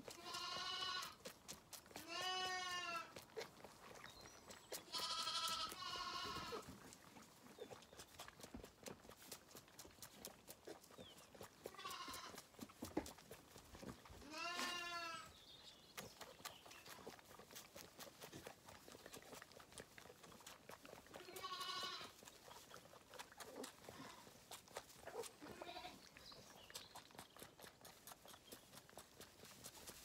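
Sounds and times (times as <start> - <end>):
lambs bleating: 0.0 - 1.2, 2.0 - 3.2, 4.8 - 6.7, 11.6 - 12.4, 14.2 - 15.3, 21.2 - 22.2, 23.6 - 24.3, 25.2 - 26.0.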